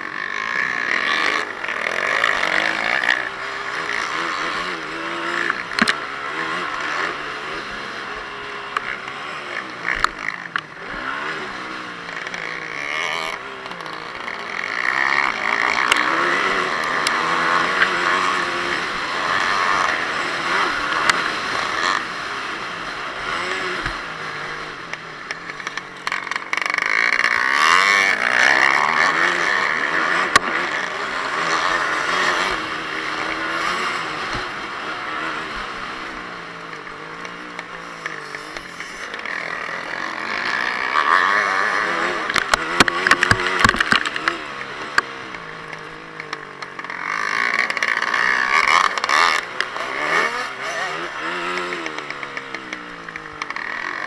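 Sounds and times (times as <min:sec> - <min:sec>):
motorcycle engine revving: 0:00.0 - 0:54.0
sharp clicks: 0:41.3 - 0:50.0.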